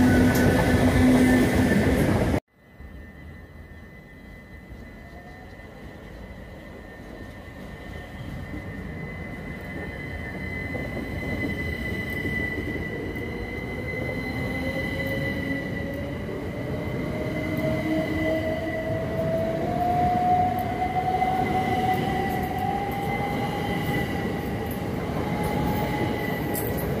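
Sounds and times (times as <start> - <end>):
train wheels rumbling on rails: 0.0 - 2.4, 3.0 - 27.0
electric train motor whine: 2.6 - 26.8.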